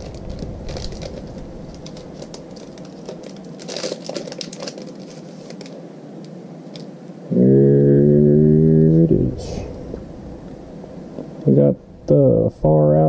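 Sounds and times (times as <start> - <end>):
foil wrapper crinkling: 0.0 - 6.9.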